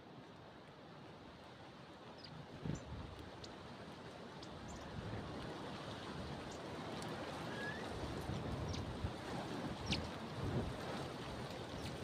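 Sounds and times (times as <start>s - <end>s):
wind noise on microphone: 7.4s - 12.0s.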